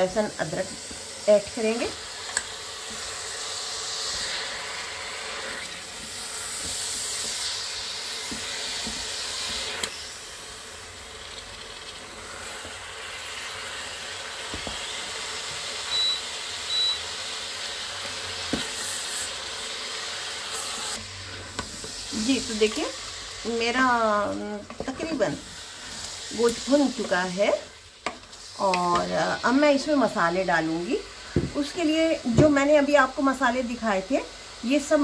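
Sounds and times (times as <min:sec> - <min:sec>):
meat sizzling in oil: 0:00.0 - 0:35.0
short high beeps: 0:15.9 - 0:17.0.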